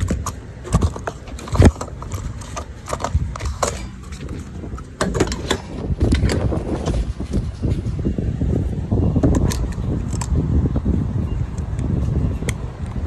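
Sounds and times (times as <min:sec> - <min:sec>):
phone being handled: 0:00.0 - 0:07.1.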